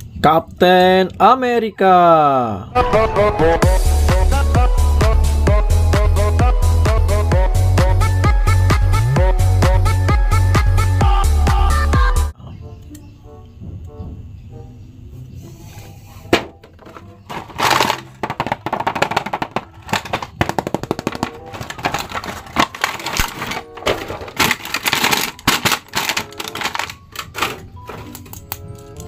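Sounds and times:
background music: 2.7 - 15.2, 19.3 - 29.0
plastic packaging crinkling: 16.6 - 29.0.

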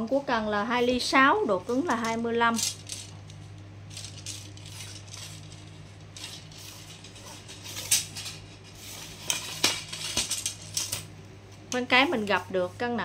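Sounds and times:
steady low hum: 0.0 - 13.0
rustling and scraping of fishing rod: 2.7 - 12.9.

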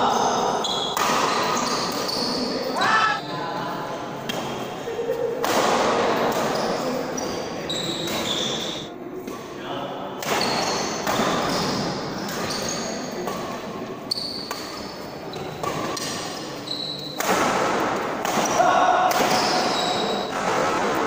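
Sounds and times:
rackets hitting shuttlecock: 0.9 - 2.0, 14.4 - 16.4, 17.1 - 21.0
shoes squeaking on court: 6.5 - 8.9.

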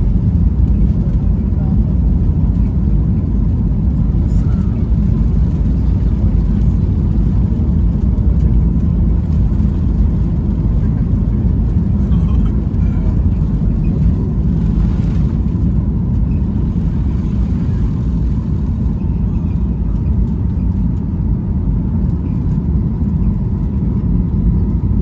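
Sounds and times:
jet engines at takeoff: 0.0 - 25.0.

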